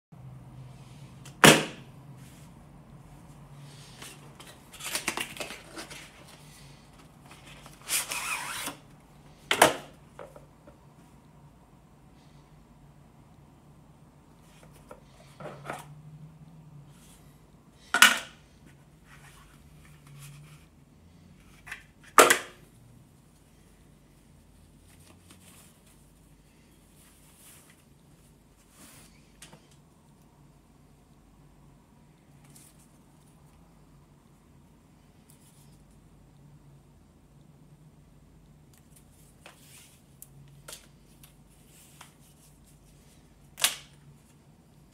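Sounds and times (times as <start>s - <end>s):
soft rustling: 23.3s - 29.7s.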